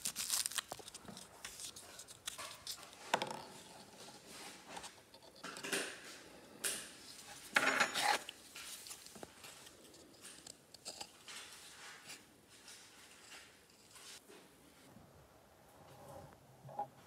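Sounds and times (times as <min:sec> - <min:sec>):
foil ball rustling: 0:00.0 - 0:02.9
ruler clattering on tabletop: 0:07.6 - 0:08.2.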